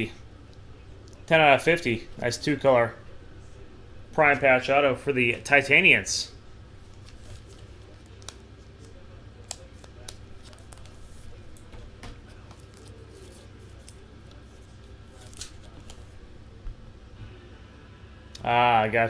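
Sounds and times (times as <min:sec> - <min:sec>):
low steady hum: 0:00.0 - 0:19.0
trading card clicks and scrapes: 0:06.9 - 0:16.2.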